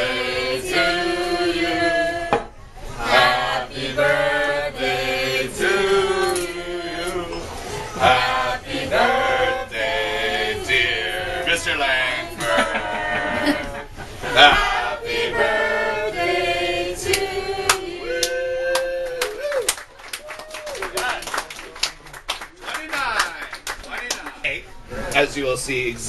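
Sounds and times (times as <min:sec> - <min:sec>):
group of people singing: 0:00.0 - 0:18.3.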